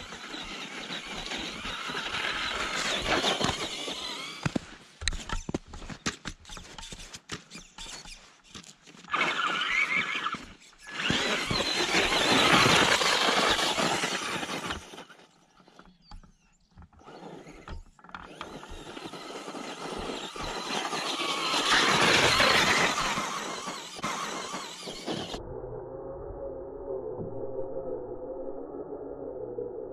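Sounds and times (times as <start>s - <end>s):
electric motor whining: 0.0s - 4.6s, 9.1s - 15.2s, 16.9s - 25.4s
tyres churning through snow: 0.0s - 15.9s, 16.9s - 25.4s.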